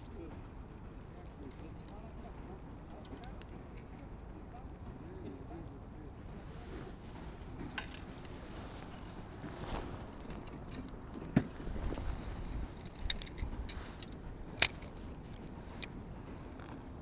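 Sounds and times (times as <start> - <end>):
fishing reel clicks and knocks: 12.8 - 15.9.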